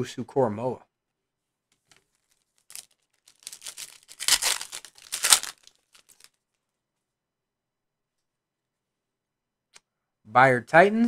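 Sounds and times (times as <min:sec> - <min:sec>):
foil wrapper tearing and crinkling: 0:02.3 - 0:06.4.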